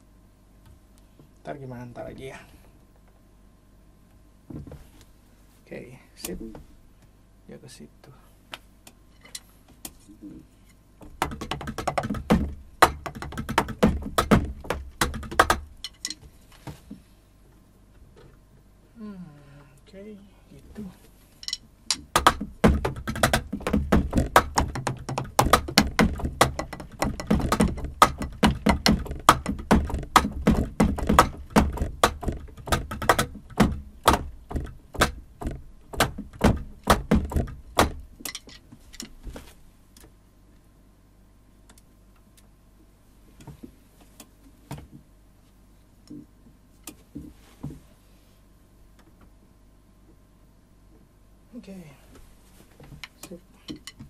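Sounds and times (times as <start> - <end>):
kick pad thumps: 11.0 - 15.7, 22.0 - 38.1
drumsticks striking drum pads: 11.0 - 16.3, 21.4 - 39.1.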